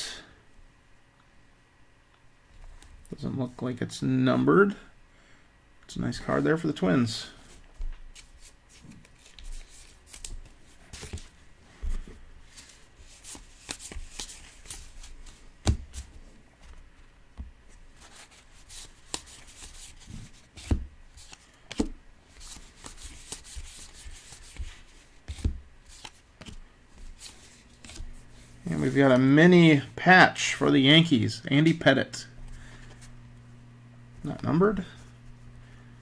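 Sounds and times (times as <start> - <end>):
cards rustling and sliding: 7.4 - 17.1, 17.7 - 29.4, 32.4 - 33.2
cards tapping: 20.6 - 28.1.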